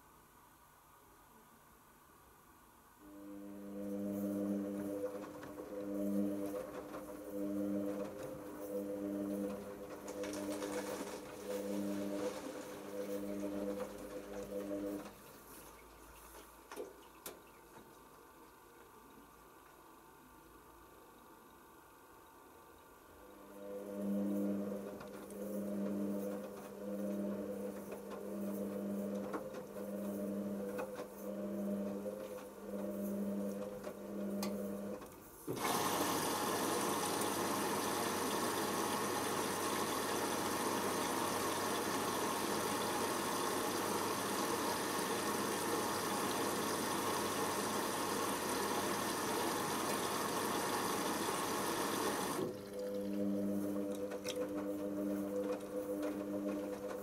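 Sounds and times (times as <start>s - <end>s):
washing machine drum motor humming: 3.4s - 18.3s, 23.3s - 57.0s.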